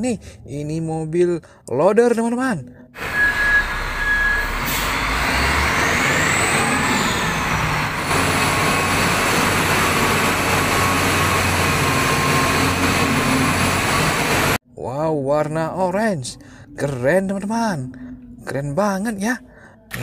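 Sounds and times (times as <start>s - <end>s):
wheel loader diesel engine: 3.0s - 14.6s.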